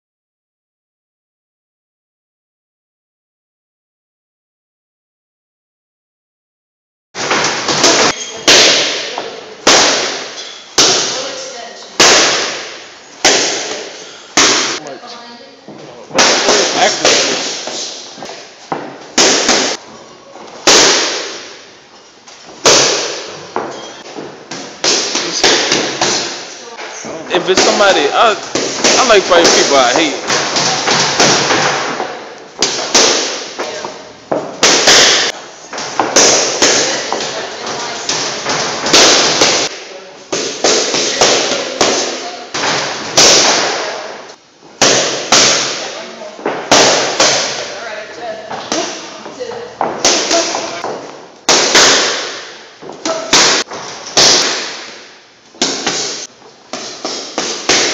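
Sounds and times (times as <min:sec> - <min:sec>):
boxing gloves smacking mitts: 0:12.0 - 0:14.8, 0:16.2 - 0:19.8, 0:20.5 - 0:21.6, 0:22.4 - 0:26.5, 0:27.3 - 0:44.0, 0:48.7 - 0:57.9.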